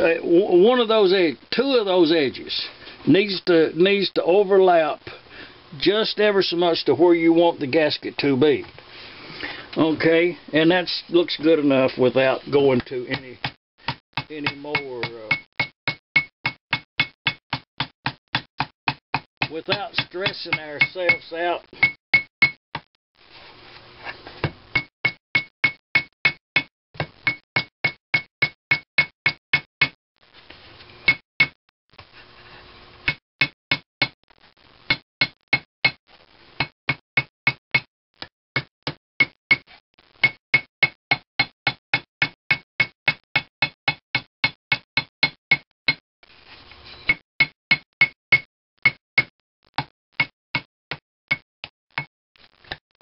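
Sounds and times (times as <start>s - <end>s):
hammer tapping with metallic ring: 13.9s - 17.4s, 20.0s - 21.2s, 21.8s - 22.6s.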